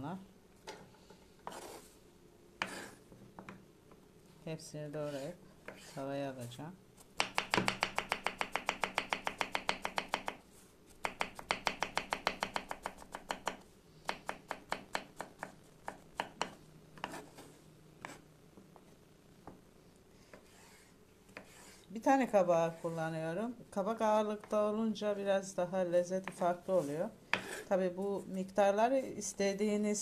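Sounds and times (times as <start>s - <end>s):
knife dicing on wooden cutting board: 2.6s - 2.9s, 11.0s - 18.2s, 27.3s - 27.6s.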